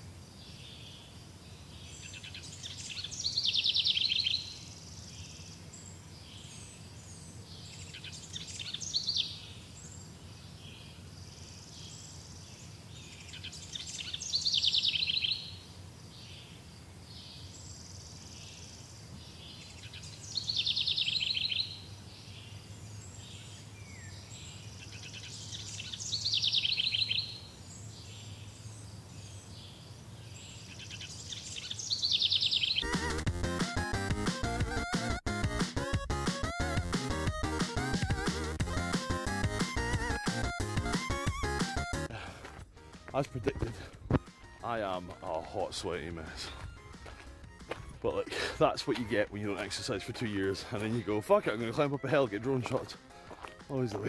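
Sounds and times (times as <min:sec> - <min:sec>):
songbird trilling: 0:01.9 - 0:05.3, 0:13.1 - 0:15.6, 0:19.8 - 0:21.8, 0:24.8 - 0:28.5, 0:30.6 - 0:32.9.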